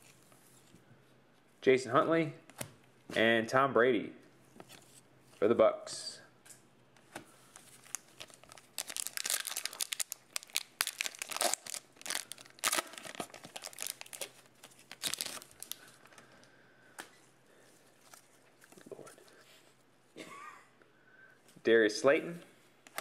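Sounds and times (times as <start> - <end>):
foil wrapper crinkling and tearing: 7.7 - 15.9.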